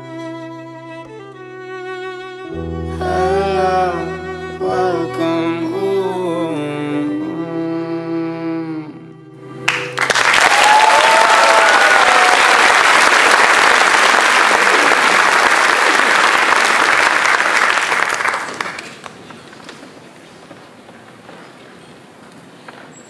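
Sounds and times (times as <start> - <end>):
audience applause: 9.6 - 19.2
high cheers: 9.7 - 18.7.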